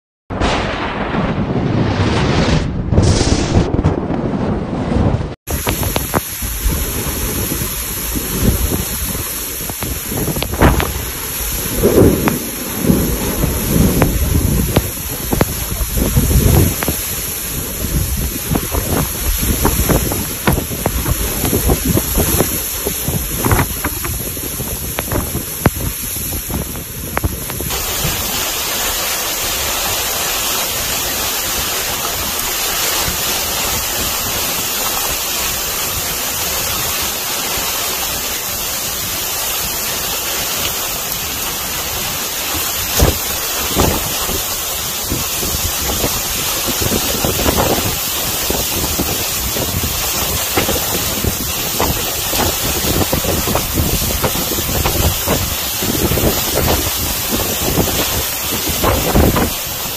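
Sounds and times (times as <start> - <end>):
storm wind buffeting microphone: 0.3 - 59.9.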